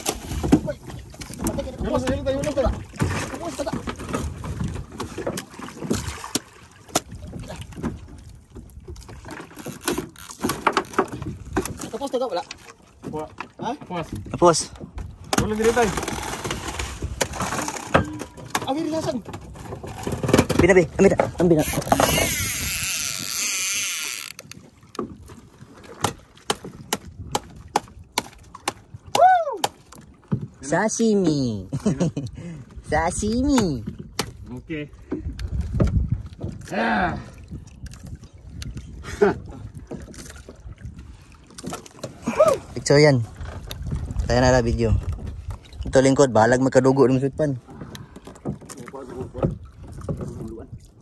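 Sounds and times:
knocks and thuds on wooden boat: 0.0 - 22.4, 24.5 - 31.4, 33.1 - 36.7, 39.6 - 41.0, 47.5 - 50.8
sea noise: 0.0 - 35.4, 36.2 - 51.0
wind: 0.0 - 51.0
wooden knocks on boat hull: 25.9 - 28.9.

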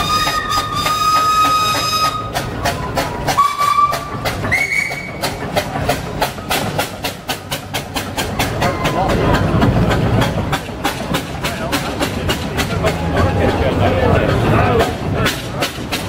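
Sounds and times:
steam whistles: 0.0 - 5.5
steam engine exhaust chuffing: 0.0 - 16.0.

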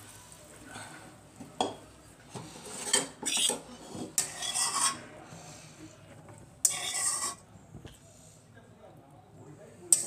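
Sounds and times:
metal spatula scraping steel pan: 2.4 - 5.1, 6.6 - 7.4.

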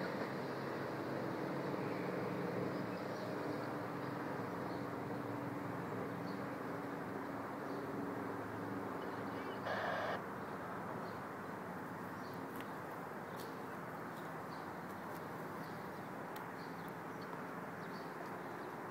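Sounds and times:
train engine hum: 0.0 - 10.2
faint bird chirps: 9.0 - 10.2.

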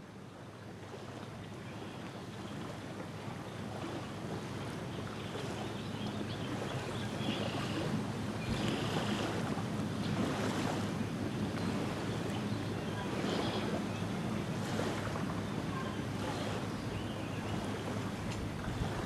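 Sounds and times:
waves lapping on shore: 0.0 - 19.0
wind on microphone: 6.5 - 19.0.

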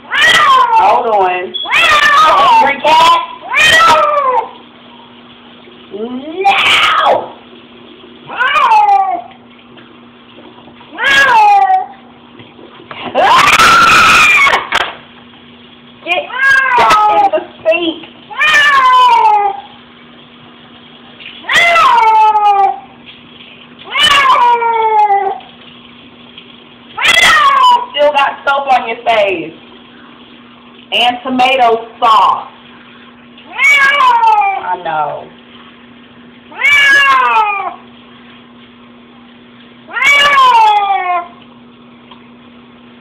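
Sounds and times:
cat meowing loudly: 0.1 - 2.8, 3.4 - 4.5, 6.4 - 7.3, 8.3 - 9.3, 10.9 - 12.0, 13.2 - 14.7, 16.3 - 17.3, 18.3 - 19.7, 21.4 - 22.8, 23.8 - 25.4, 27.0 - 27.9, 33.5 - 34.8, 36.5 - 37.8, 39.9 - 41.4.

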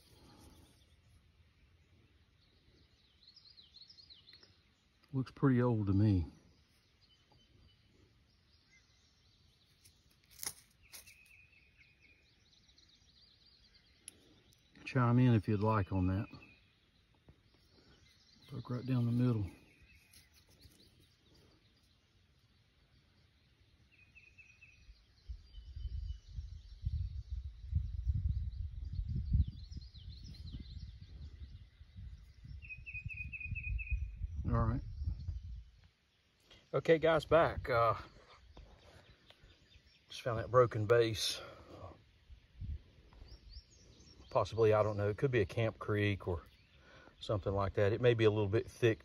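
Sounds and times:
faint bird chirping: 0.0 - 49.0
wind rumble on microphone: 25.2 - 35.8, 42.3 - 43.8.

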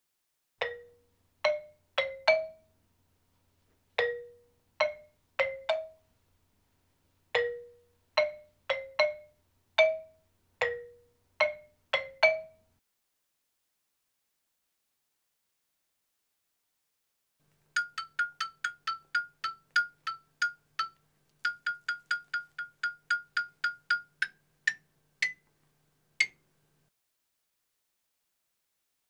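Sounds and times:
marimba-like mallet melody: 0.6 - 2.7, 4.0 - 6.0, 7.4 - 12.6, 17.7 - 25.4.

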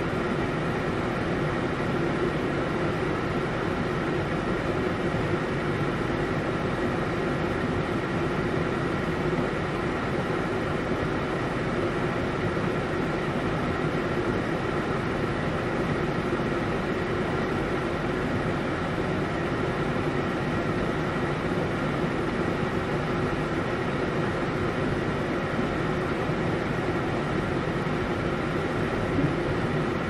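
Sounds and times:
heavy rain: 29.1 - 29.9.

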